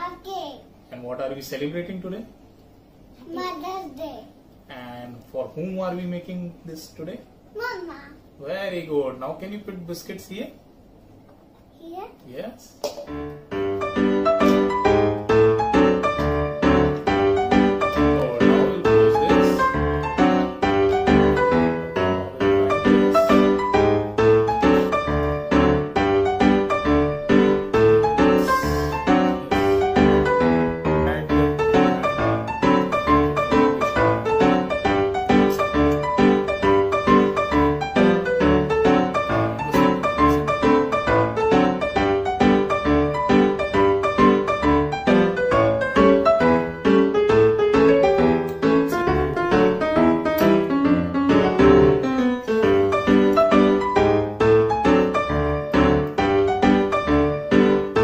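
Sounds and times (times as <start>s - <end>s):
piano music with bass: 13.1s - 58.0s.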